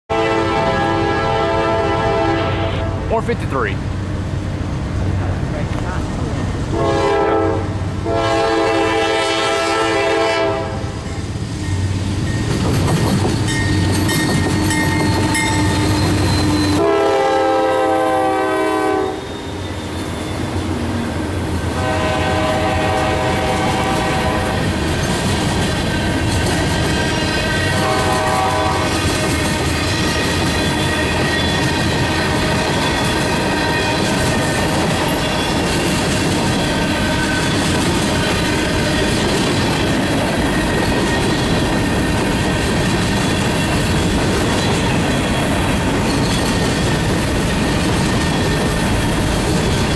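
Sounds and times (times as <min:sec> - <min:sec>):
train air horn blasts: 0:00.1 - 0:03.2, 0:06.7 - 0:11.0, 0:15.3 - 0:19.5, 0:21.7 - 0:24.7, 0:27.1 - 0:29.2
diesel engines rumbling: 0:01.1 - 0:09.4
train wheels clacking on rails: 0:11.0 - 0:49.9.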